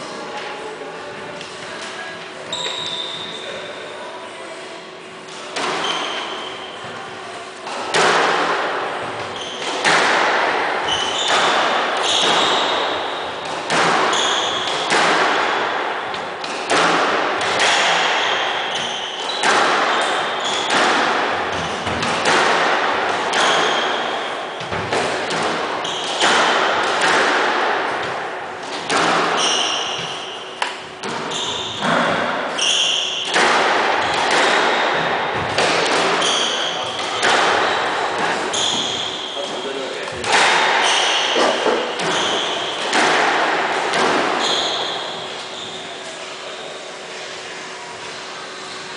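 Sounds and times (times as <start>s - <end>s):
sneakers squeaking on wooden floor: 2.5s - 3.7s, 5.6s - 7.0s, 9.0s - 9.9s, 10.8s - 15.0s, 18.0s - 20.8s, 23.3s - 24.8s, 25.8s - 27.2s, 29.2s - 33.3s, 36.2s - 39.8s, 40.8s - 43.0s, 44.3s - 46.1s
squash ball cracking off walls: 13.5s - 15.8s.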